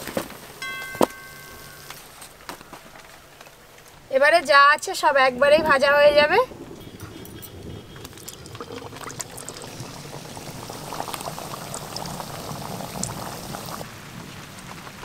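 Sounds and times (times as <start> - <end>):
oil bubbling and crackling: 6.7 - 15.0.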